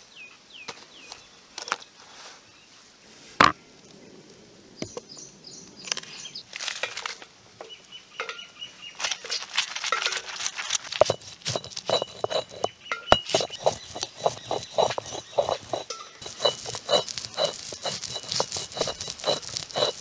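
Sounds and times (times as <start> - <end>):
stone roller crushing chillies: 9.0 - 20.0.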